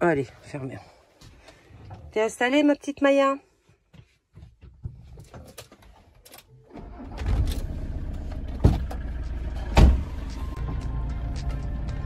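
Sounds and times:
engine starting and idling: 6.5 - 11.3.

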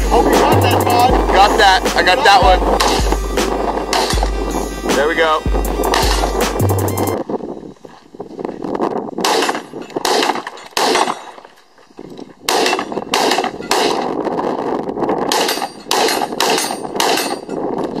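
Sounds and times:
rifle shots with echo: 9.2 - 11.2, 12.4 - 14.1, 15.3 - 17.4.

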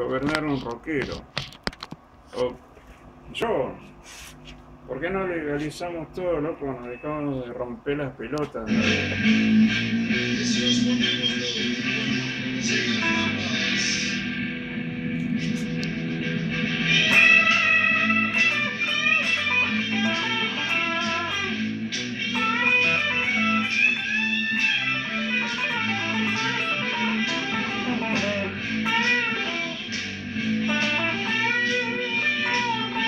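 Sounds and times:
electric guitar blues-rock line: 8.7 - 33.0.

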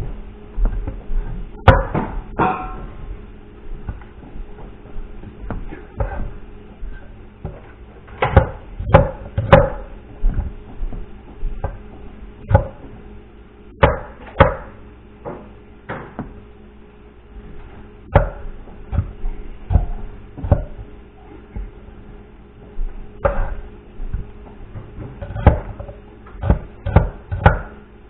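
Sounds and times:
knife chopping on wooden board: 8.2 - 10.5, 12.4 - 12.9, 13.8 - 14.7, 18.1 - 20.8, 23.2 - 27.8.

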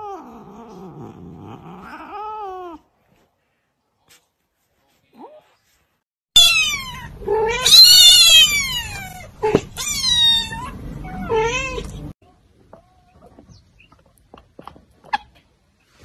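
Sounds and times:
kitten meowing: 6.4 - 11.9.

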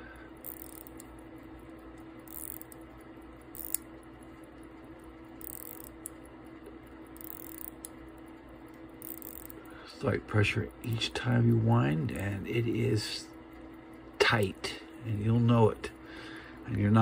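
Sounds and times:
watch crown ratcheting clicks: 0.4 - 3.9, 5.4 - 9.7.

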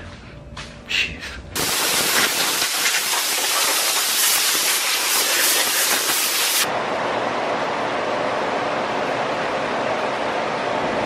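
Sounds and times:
pneumatic cutoff tool cutting metal: 1.6 - 6.7.

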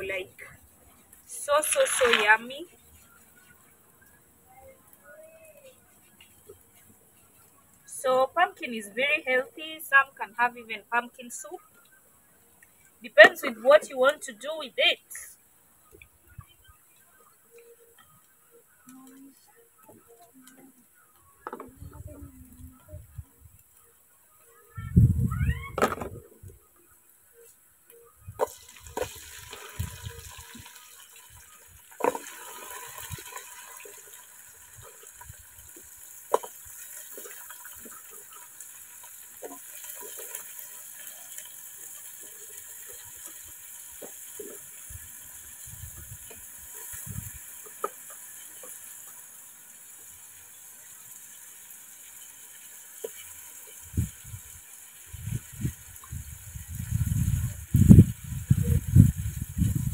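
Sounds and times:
faint steady hiss: 0.0 - 59.9
small water splashes: 1.3 - 2.7, 28.4 - 57.2.

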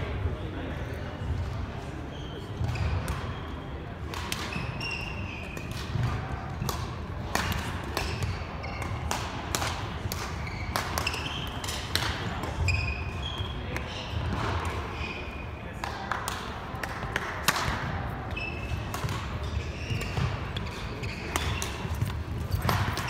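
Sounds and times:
rackets hitting shuttlecocks: 2.6 - 15.1, 15.7 - 23.0
sneakers squeaking on wooden floor: 4.5 - 5.6, 8.2 - 9.0, 10.3 - 11.8, 12.6 - 13.7, 14.8 - 15.4, 18.3 - 23.0.

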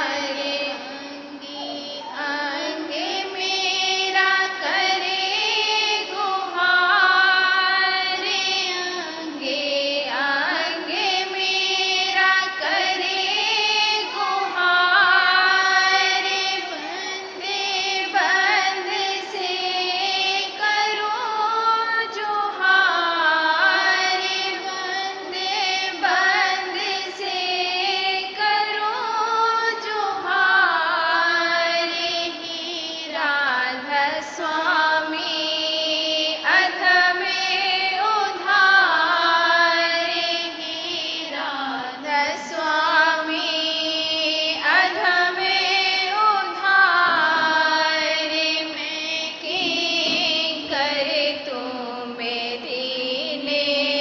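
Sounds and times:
high voice singing a hymn: 0.0 - 39.9, 40.6 - 54.0
devotional music: 39.7 - 54.0.

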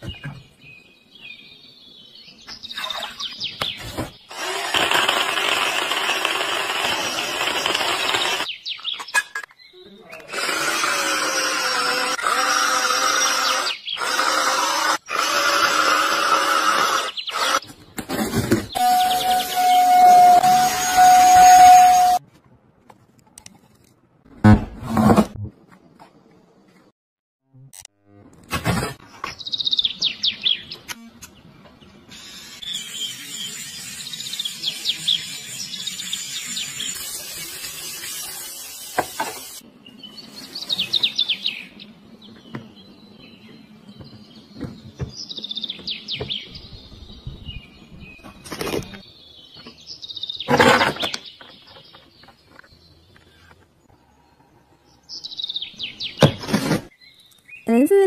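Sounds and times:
songbirds chirping: 0.0 - 4.3, 8.2 - 10.4, 29.0 - 37.3, 39.6 - 58.0.

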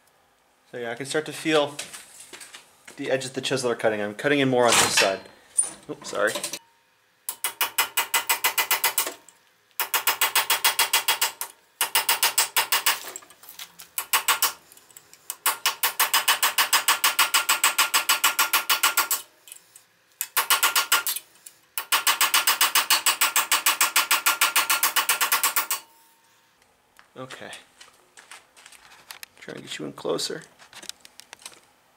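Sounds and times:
air hammer chattering on steel: 7.3 - 9.2, 9.8 - 13.1, 14.0 - 14.6, 15.3 - 19.3, 20.2 - 21.2, 21.8 - 25.9.

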